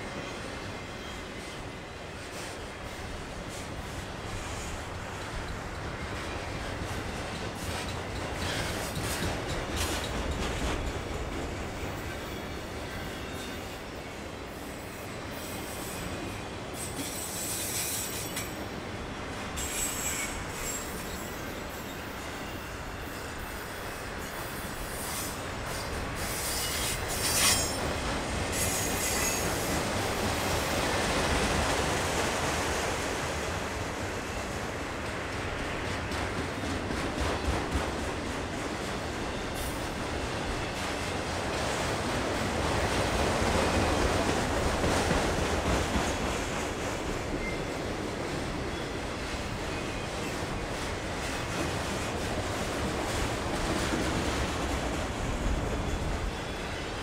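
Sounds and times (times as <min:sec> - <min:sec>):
steel wheels rumbling on rail: 0:00.0 - 0:57.0
high-pitched wheel squeal: 0:19.6 - 0:22.0, 0:24.6 - 0:27.8.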